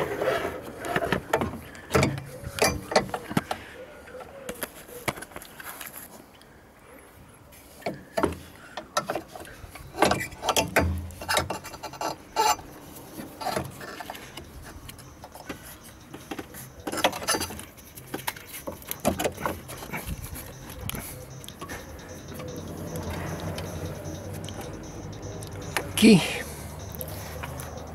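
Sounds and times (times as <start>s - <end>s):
hands clicking and tapping parts: 13.1s - 26.0s.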